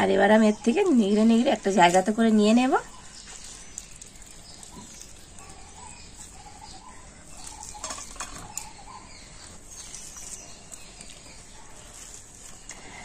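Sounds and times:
hands squeezing wet cabbage: 0.7 - 13.0
water dripping into steel bowl: 3.3 - 5.5.

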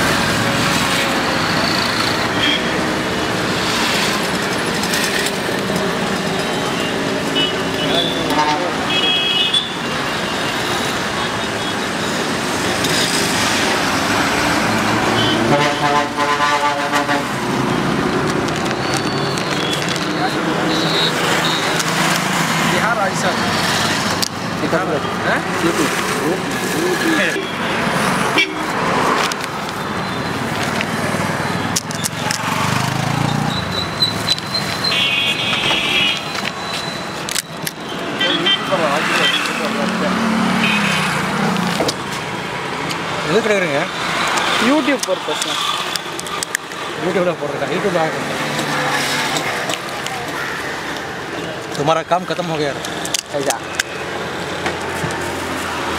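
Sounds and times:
traffic rumble and hiss: 0.0 - 55.9
vehicle horn: 7.3 - 9.8, 15.1 - 17.4, 28.4 - 28.7
sharp clicks: 44.2 - 46.8.

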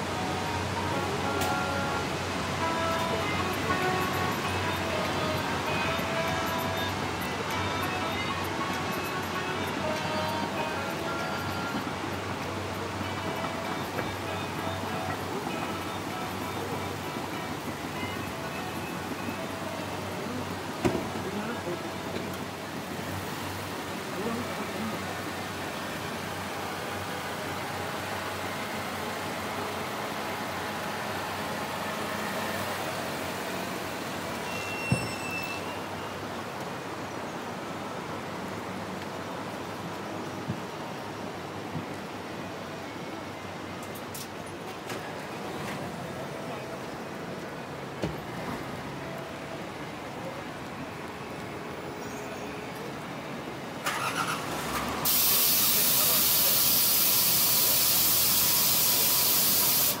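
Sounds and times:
loud steady hiss: 0.0 - 43.6, 52.9 - 60.0
car rolling slowly: 0.0 - 60.0
high squeak: 34.4 - 36.1.

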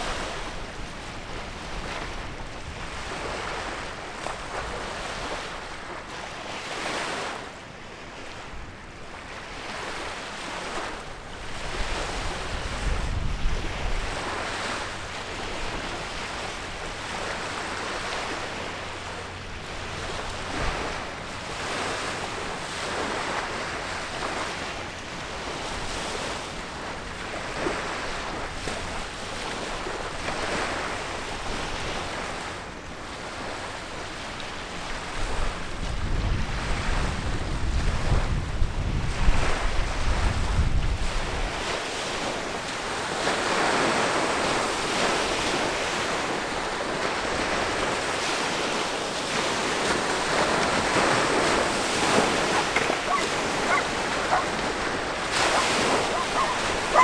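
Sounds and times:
wind on microphone: 9.6 - 32.6, 33.4 - 57.0
river water rushing: 42.6 - 57.0.

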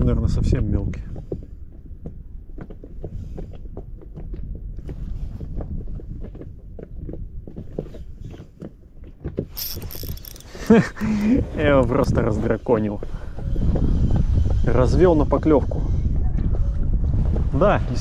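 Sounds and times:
wind buffeting microphone: 11.0 - 18.0.

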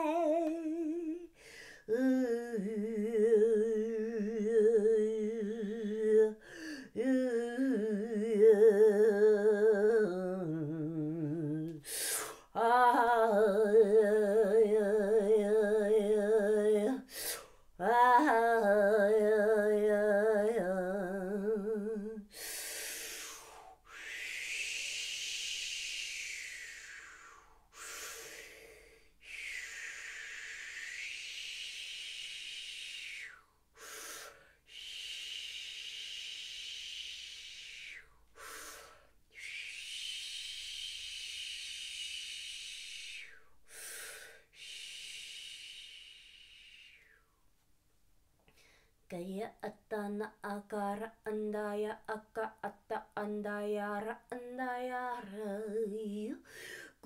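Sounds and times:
woman singing wordless tones: 0.0 - 22.9, 49.1 - 57.0
long hissing breaths: 22.3 - 47.2.

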